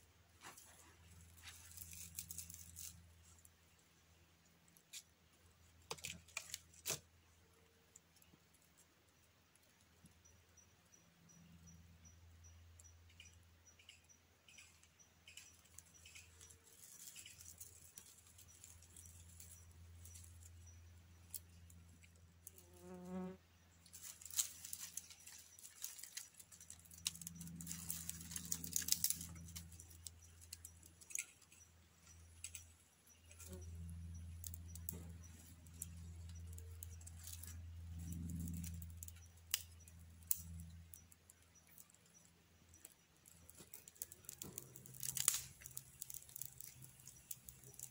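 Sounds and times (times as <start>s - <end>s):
dry twigs snapping: 1.4s - 3.0s, 5.9s - 7.0s, 23.8s - 31.4s, 34.4s - 40.7s, 43.2s - 47.9s
flies buzzing: 22.4s - 23.4s
kindling crackling: 23.9s - 31.6s, 33.4s - 42.2s, 42.8s - 47.9s.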